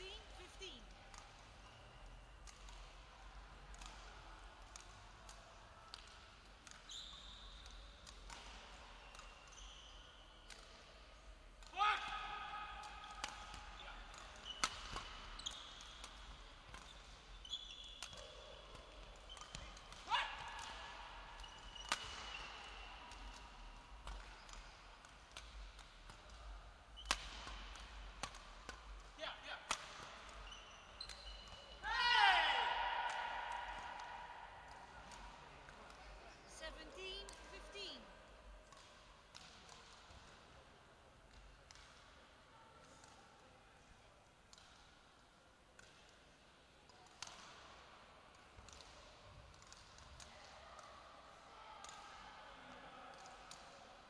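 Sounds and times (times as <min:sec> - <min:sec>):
rackets hitting shuttlecock: 0:00.0 - 0:38.0, 0:38.6 - 0:40.6, 0:41.3 - 0:42.2, 0:44.5 - 0:46.2, 0:46.9 - 0:50.9
shoes squeaking on court floor: 0:06.6 - 0:10.4, 0:13.8 - 0:20.0, 0:20.7 - 0:24.8, 0:30.0 - 0:31.8
shoes squeaking on floor: 0:06.9 - 0:07.6, 0:13.8 - 0:16.1, 0:16.8 - 0:18.4, 0:30.4 - 0:31.8.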